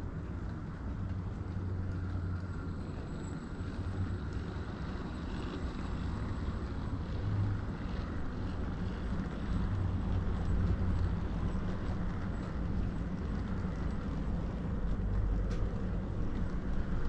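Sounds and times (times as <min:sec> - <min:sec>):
wheels rumbling on rails: 0:00.0 - 0:17.0
model train motor hum: 0:01.8 - 0:12.5.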